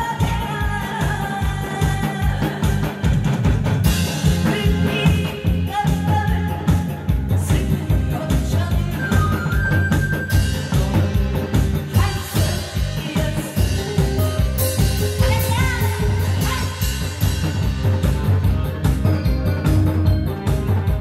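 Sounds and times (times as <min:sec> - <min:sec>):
woman singing into microphone: 0:00.0 - 0:03.4, 0:04.2 - 0:17.4
amplified music with drum beat: 0:00.0 - 0:21.0.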